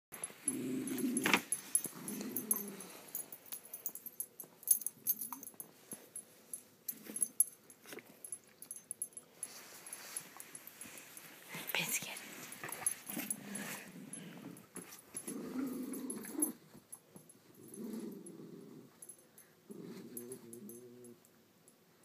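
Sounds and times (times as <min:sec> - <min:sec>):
dogs growling: 0:00.4 - 0:03.2, 0:12.8 - 0:16.6, 0:17.5 - 0:19.1, 0:19.7 - 0:21.2.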